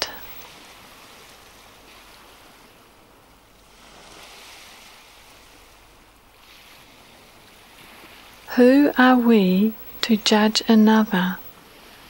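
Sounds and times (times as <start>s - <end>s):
waves washing ashore: 0.4s - 8.5s.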